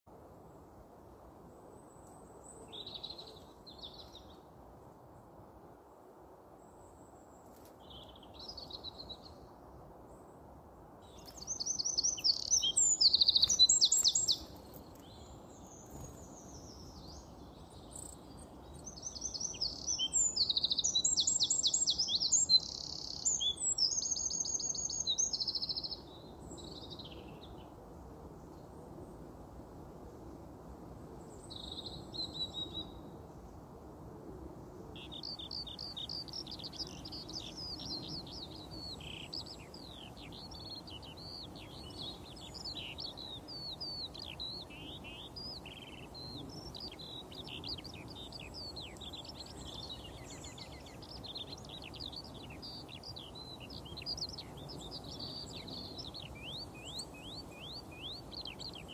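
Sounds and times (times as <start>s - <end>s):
songbird twittering: 11.0s - 27.3s, 35.0s - 58.9s.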